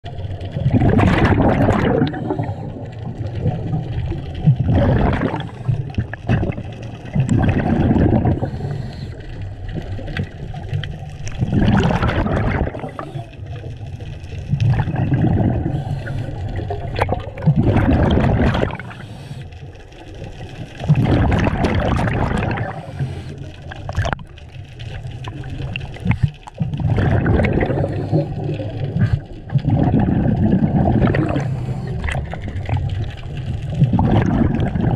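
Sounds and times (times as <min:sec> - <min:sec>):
exhaled bubbles gurgling: 0:00.0 - 0:34.9
scuba regulator breathing: 0:02.0 - 0:03.0, 0:08.0 - 0:09.6, 0:15.3 - 0:16.8, 0:18.7 - 0:19.8, 0:22.6 - 0:23.8, 0:27.3 - 0:29.4, 0:31.1 - 0:32.4.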